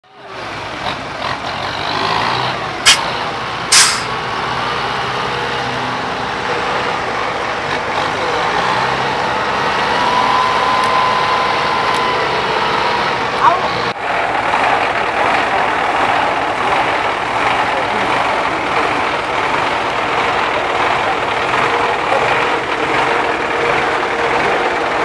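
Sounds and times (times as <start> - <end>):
truck diesel engine running: 0.1 - 25.0
short sharp noises: 2.9 - 3.1, 3.7 - 4.1.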